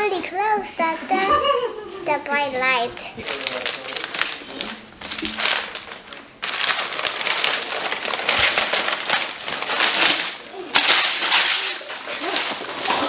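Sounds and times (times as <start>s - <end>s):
gift wrapping crinkling and tearing: 2.6s - 13.0s.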